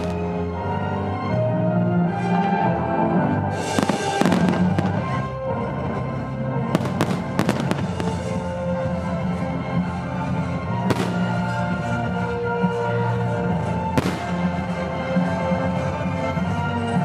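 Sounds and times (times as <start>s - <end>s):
music with long held notes: 0.0s - 17.0s
firework shells bursting: 10.9s - 11.6s.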